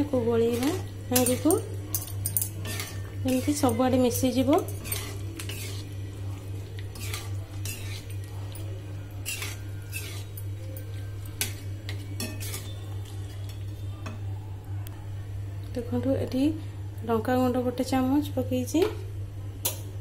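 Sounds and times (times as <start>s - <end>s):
metal spoon scraping a wok: 0.4s - 1.6s, 2.4s - 6.0s, 6.8s - 8.3s, 9.1s - 12.8s.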